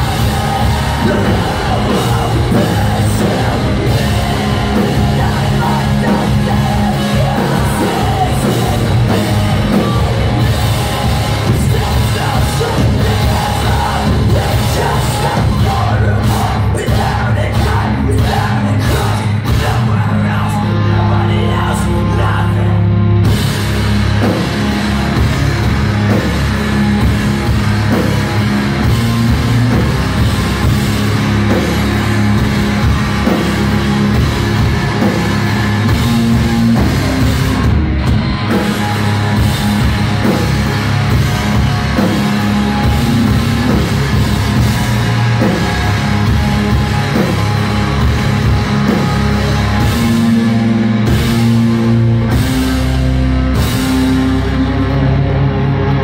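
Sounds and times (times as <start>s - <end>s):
rock band playing: 0.0s - 56.0s.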